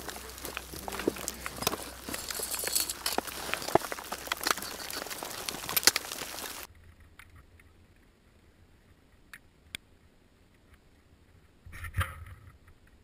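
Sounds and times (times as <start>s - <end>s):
rustling and crunching: 0.0s - 7.0s.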